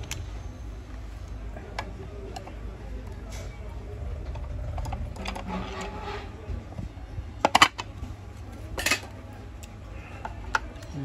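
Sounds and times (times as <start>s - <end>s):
plastic housing scraping: 4.3s - 6.6s.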